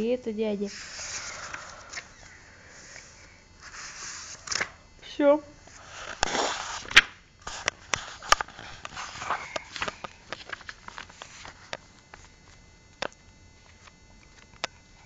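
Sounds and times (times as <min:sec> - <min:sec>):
paper rustling: 0:05.8 - 0:12.6.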